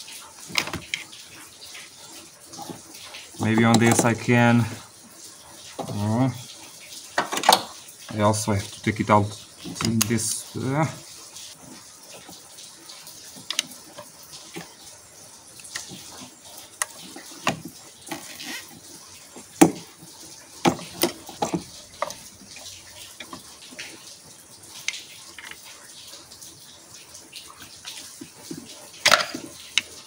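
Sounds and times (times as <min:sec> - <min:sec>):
hand tools clicking and knocking: 0:03.4 - 0:04.2.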